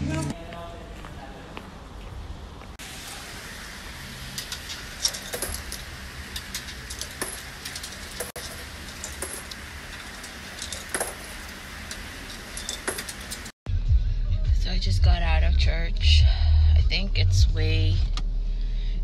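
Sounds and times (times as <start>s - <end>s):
metallic clinks and taps: 4.4s - 13.5s.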